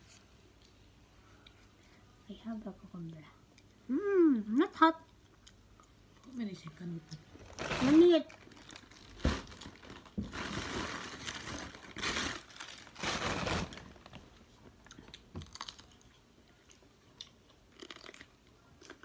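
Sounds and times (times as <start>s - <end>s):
cucumber crunching: 14.9s - 16.2s, 17.2s - 19.0s.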